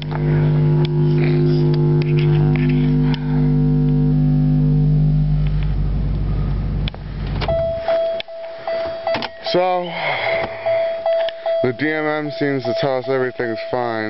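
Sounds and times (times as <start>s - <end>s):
low drone in car: 0.0s - 14.0s
high-pitched warning chime: 7.5s - 14.0s.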